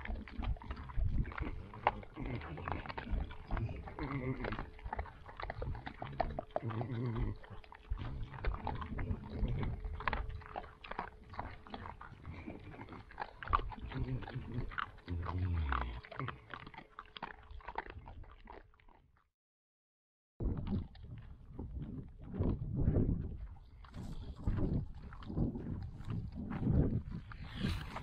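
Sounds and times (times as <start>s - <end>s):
animals crunching feed: 0.0s - 19.1s, 20.4s - 28.0s
short low grunts: 0.8s - 4.8s, 23.9s - 28.0s.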